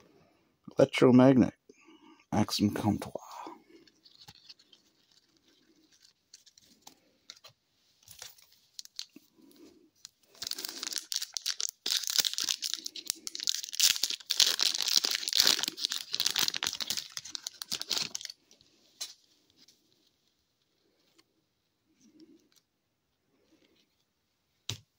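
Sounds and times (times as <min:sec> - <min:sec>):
foil wrapper tearing and crinkling: 0:04.0 - 0:06.6, 0:08.1 - 0:09.2, 0:10.3 - 0:18.4.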